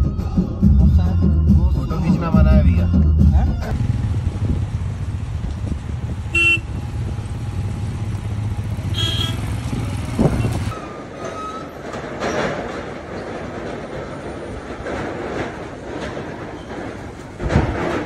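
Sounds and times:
vehicle engine rumble: 2.3s - 18.0s
short horn toots: 6.3s - 6.7s, 8.9s - 9.5s.

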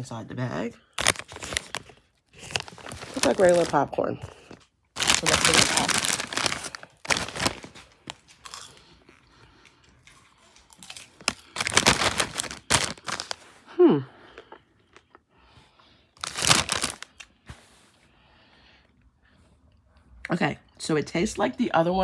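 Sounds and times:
foil snack bag crinkling: 0.8s - 8.9s, 10.0s - 13.6s, 16.2s - 17.3s
popcorn crunched while chewing: 0.8s - 13.6s, 16.2s - 17.3s.

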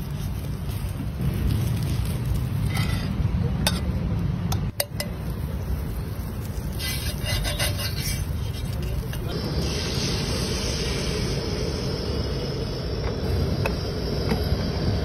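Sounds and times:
steady low rumble: 8.4s - 15.0s.

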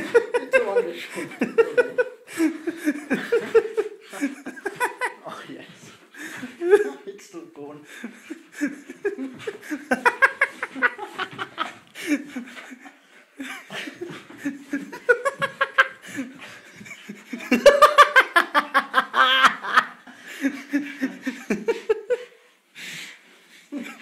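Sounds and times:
person laughing hard: 8.5s - 22.2s.

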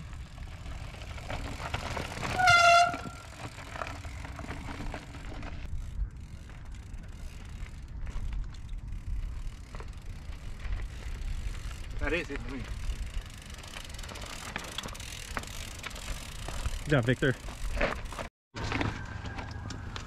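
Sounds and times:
bike tyres crunching over gravel: 0.0s - 20.0s.

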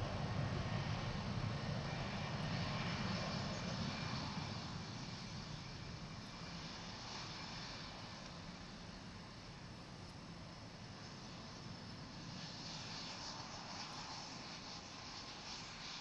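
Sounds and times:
jet engines rumbling and hissing: 0.0s - 16.0s.

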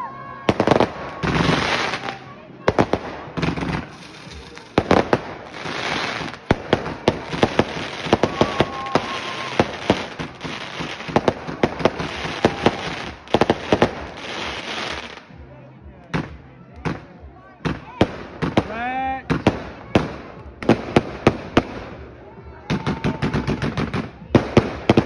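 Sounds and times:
fireworks bangs and crackles: 0.5s - 15.4s, 16.0s - 25.0s
fireworks hissing: 0.5s - 15.4s.

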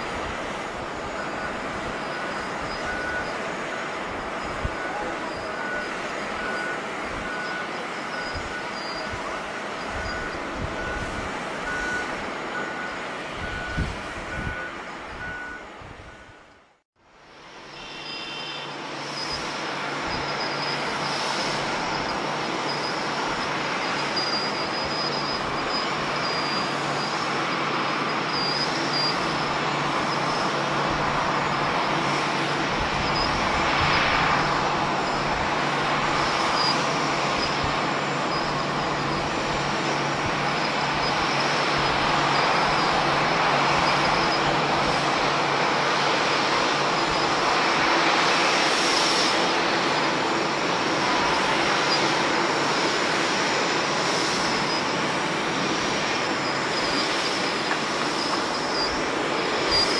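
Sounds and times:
jet engines idling: 0.0s - 59.9s.

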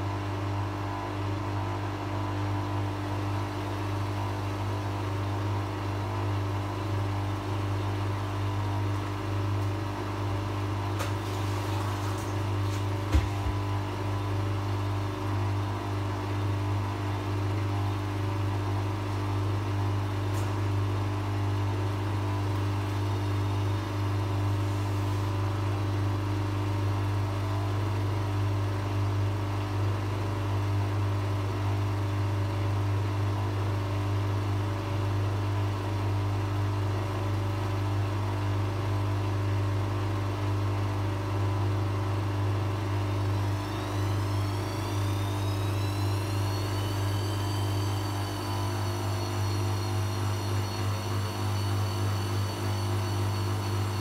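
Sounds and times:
washing machine spinning: 0.0s - 54.0s
high whine: 43.3s - 54.0s.

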